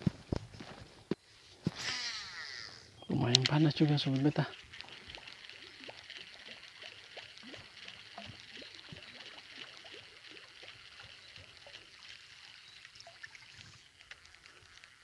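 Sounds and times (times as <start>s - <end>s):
short chirps and ticks: 3.0s - 6.6s.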